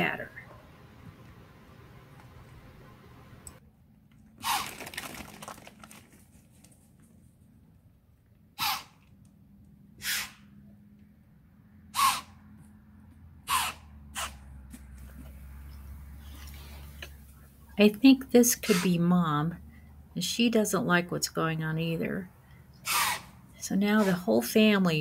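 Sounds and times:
deer snorting: 8.6 - 9.0, 10.0 - 10.5, 11.9 - 12.3, 13.4 - 14.4, 18.6 - 19.0, 22.8 - 24.3.

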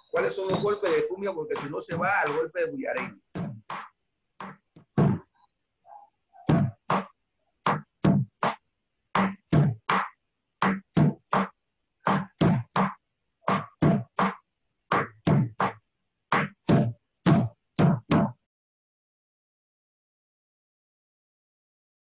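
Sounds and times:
drum strokes: 0.2 - 5.3, 9.2 - 18.3.

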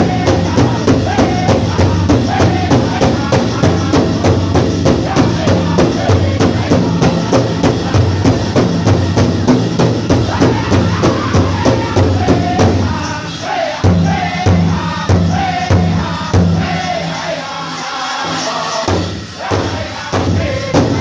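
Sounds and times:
big drum beating: 0.0 - 13.0, 18.9 - 21.0
high wavering group singing: 0.0 - 21.0.

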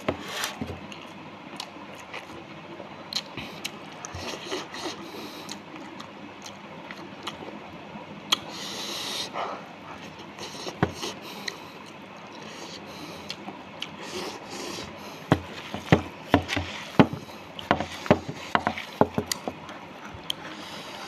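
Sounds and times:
chewing: 0.3 - 2.4, 3.1 - 7.6, 9.4 - 15.9, 16.6 - 21.0
hand mixing rice: 14.0 - 19.6.

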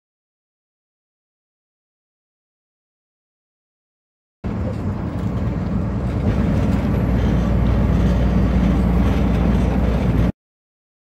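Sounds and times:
truck engine and tyre rumble: 4.4 - 10.4.

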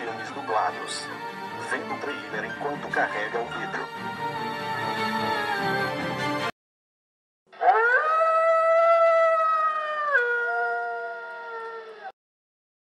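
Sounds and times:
wolf howling: 7.6 - 12.2.

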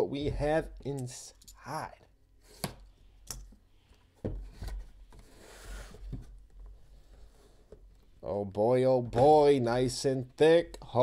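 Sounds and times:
cardboard sliding rustle: 4.4 - 7.7.

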